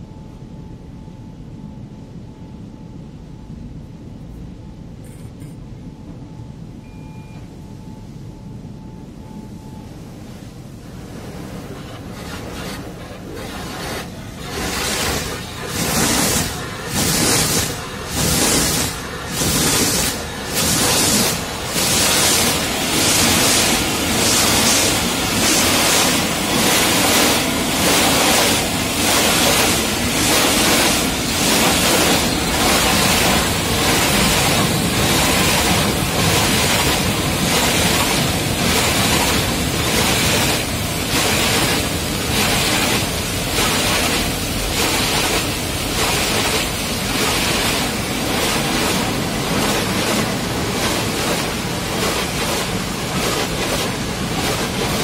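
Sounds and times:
water spray rushing: 11.3 - 55.0
brushes scrubbing car body: 11.7 - 55.0.

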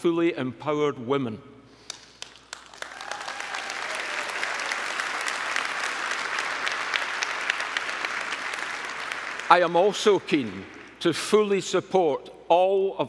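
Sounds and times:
large audience applauding: 1.9 - 11.0.

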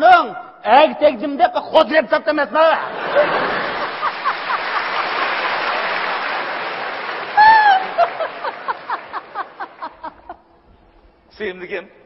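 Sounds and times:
audience applause: 3.2 - 10.2
woman laughing loudly: 7.4 - 10.6.

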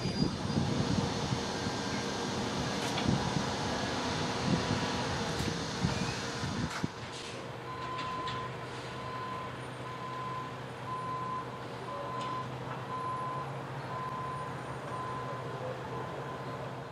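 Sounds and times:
diesel engine running: 0.0 - 16.9
reversing alarm beeping: 7.7 - 16.7.

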